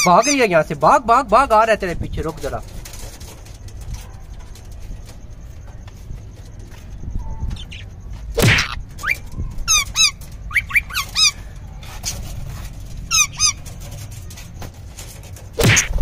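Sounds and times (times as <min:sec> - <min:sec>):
harsh bird cry: 0:00.0 - 0:00.6, 0:07.2 - 0:12.3, 0:13.1 - 0:13.8
parakeets chirping: 0:00.0 - 0:00.6, 0:06.6 - 0:14.5.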